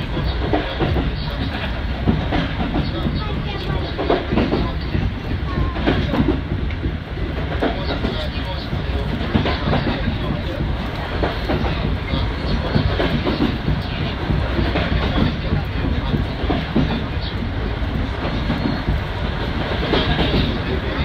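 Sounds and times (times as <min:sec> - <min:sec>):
steam locomotive running: 0:00.0 - 0:21.0
wheels clattering over rails: 0:00.0 - 0:21.0
wind: 0:00.0 - 0:21.0.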